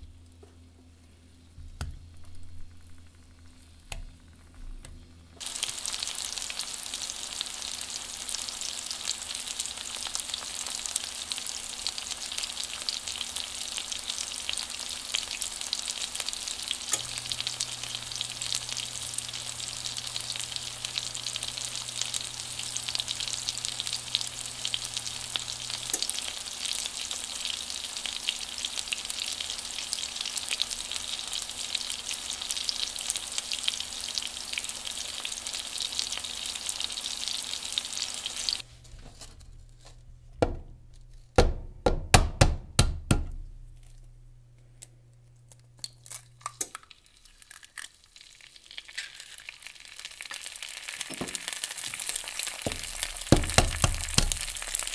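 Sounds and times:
sausage sizzling in oil: 0:05.4 - 0:39.3, 0:46.0 - 0:54.9.

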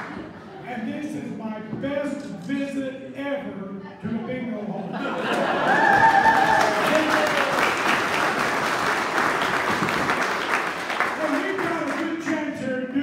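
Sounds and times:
man speaking over microphone: 0:00.6 - 0:05.0, 0:11.2 - 0:13.0
audience applauding: 0:05.3 - 0:12.2.

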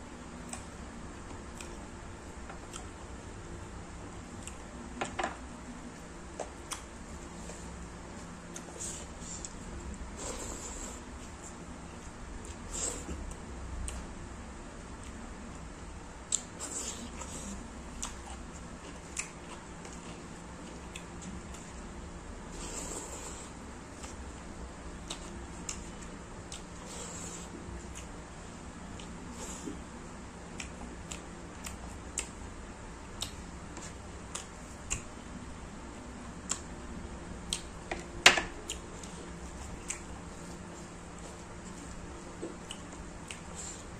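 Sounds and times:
soft squishing of food: 0:00.0 - 0:43.9
chewing and lip-smacking: 0:00.4 - 0:01.9, 0:02.6 - 0:03.0, 0:04.3 - 0:04.7, 0:05.9 - 0:07.6, 0:08.2 - 0:14.1, 0:16.2 - 0:21.9, 0:25.0 - 0:28.2, 0:28.8 - 0:35.2, 0:36.4 - 0:36.7, 0:37.4 - 0:37.8, 0:38.6 - 0:43.9.

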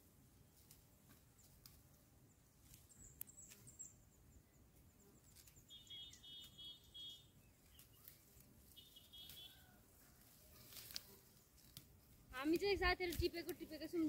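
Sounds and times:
faint high chirps: 0:02.8 - 0:09.8.

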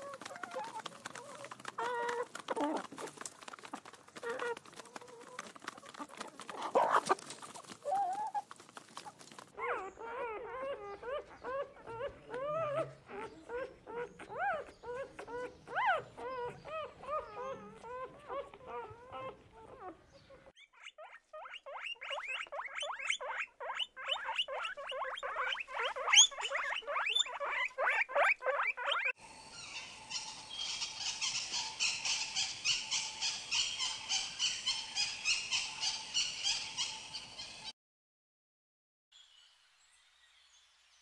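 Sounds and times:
guinea pigs squeaking: 0:00.0 - 0:29.2
guineafowl chattering calls: 0:20.2 - 0:37.7.

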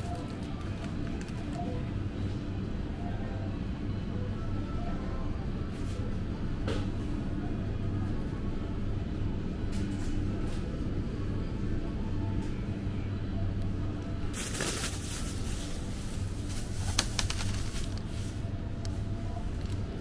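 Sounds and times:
steady low hum: 0:00.0 - 0:20.0
plastic bag crinkling: 0:14.4 - 0:18.0.

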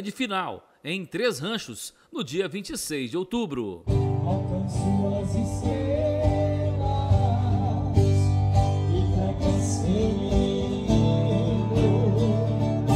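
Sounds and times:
man singing: 0:03.9 - 0:12.9
strummed acoustic guitars: 0:03.9 - 0:12.9.

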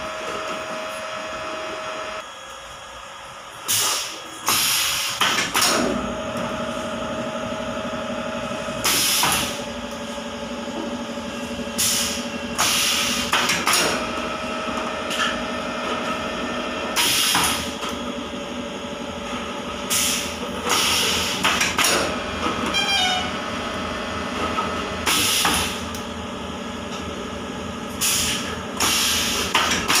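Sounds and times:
steady motor hum: 0:00.0 - 0:04.5, 0:05.2 - 0:30.0
compressed air hisses: 0:19.9 - 0:21.4, 0:28.0 - 0:29.6.

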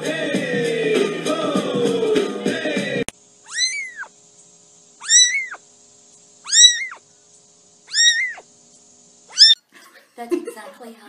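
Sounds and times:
music: 0:00.0 - 0:03.1
kitten meowing: 0:03.5 - 0:04.1, 0:05.0 - 0:05.6, 0:06.4 - 0:07.0, 0:07.9 - 0:08.4, 0:09.3 - 0:09.6.

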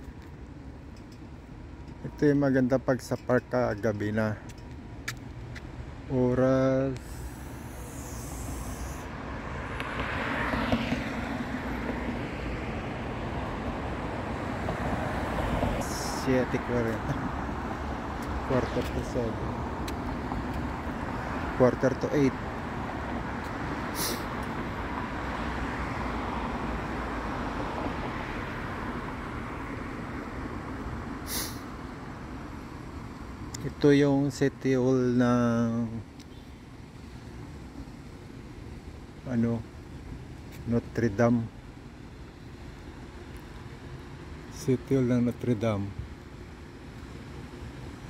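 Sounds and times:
road traffic rumble: 0:00.0 - 0:48.0
steady outdoor hum: 0:00.0 - 0:48.0
vehicle passing by: 0:07.1 - 0:31.8
short hiss: 0:23.9 - 0:24.3, 0:31.2 - 0:31.7.

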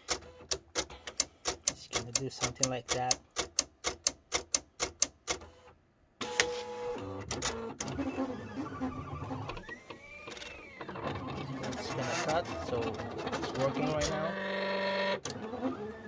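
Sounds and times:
fast even clicks: 0:01.1 - 0:05.1
cutter motors running: 0:10.0 - 0:16.0.

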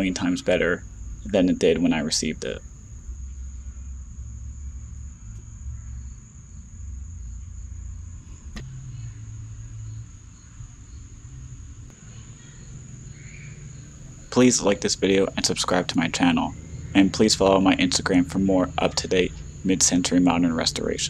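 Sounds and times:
low rumble: 0:00.7 - 0:21.0
steady high-pitched tone: 0:11.9 - 0:21.0.

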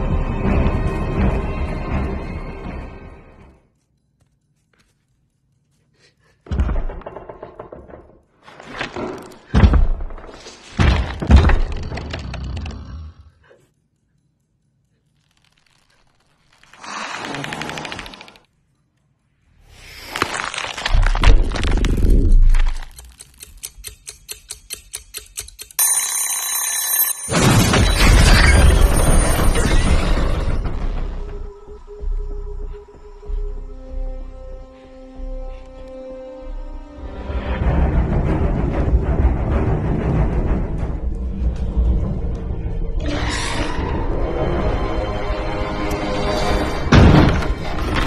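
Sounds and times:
kitchen timer ticking: 0:22.9 - 0:27.0
timer bell ringing: 0:25.8 - 0:27.4.

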